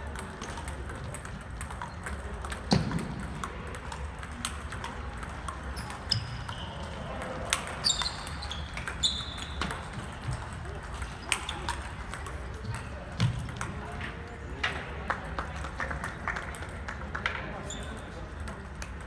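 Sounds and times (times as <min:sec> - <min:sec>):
table tennis balls clicking: 0:00.0 - 0:15.3
sneakers squeaking on wooden floor: 0:07.8 - 0:10.0.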